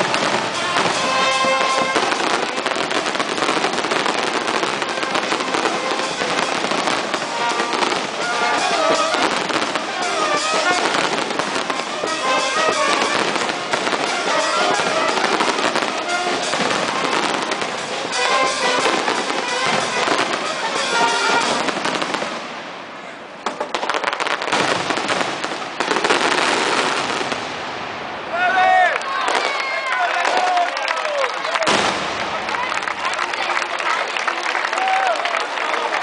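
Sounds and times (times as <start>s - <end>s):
music playing: 0.0s - 22.4s
fireworks crackling and popping: 0.0s - 36.0s.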